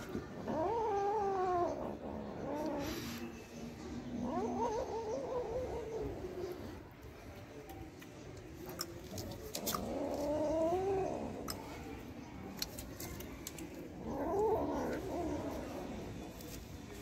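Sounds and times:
kitten growl-yowling: 0.2s - 3.0s, 4.0s - 6.7s, 9.5s - 11.6s, 13.9s - 16.1s
eating clicks: 8.0s - 11.8s.

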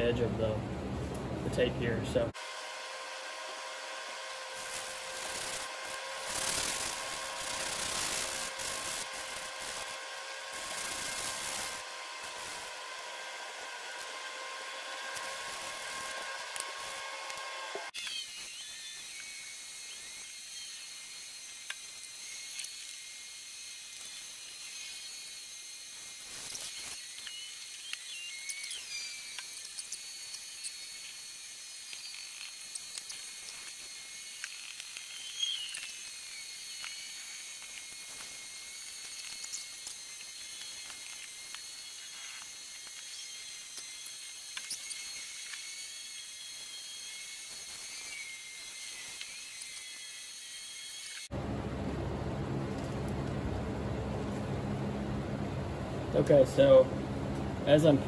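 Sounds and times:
high-pitched whine: 3.5s - 20.8s
masking tape peeling crackles: 4.2s - 19.3s, 25.9s - 45.6s.

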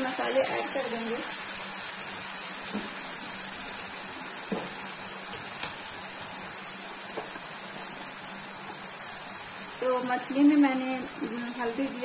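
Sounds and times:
paste sizzling in oil: 0.0s - 12.0s.

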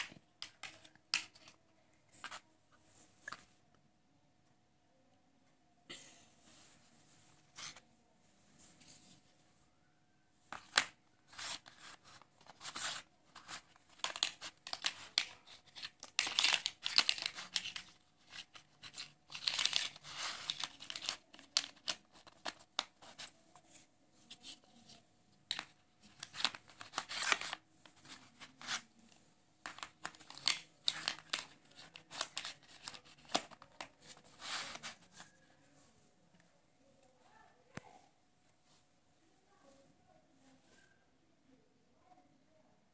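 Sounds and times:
plastic puzzle pieces clicking: 0.0s - 1.6s, 10.5s - 23.3s, 29.6s - 35.0s
pieces scraping on paper: 10.5s - 23.4s, 24.3s - 28.9s, 29.6s - 35.4s.

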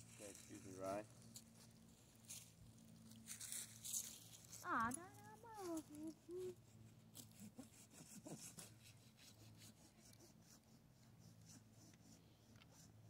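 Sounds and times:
hand saw rasping through wood: 7.1s - 12.2s.

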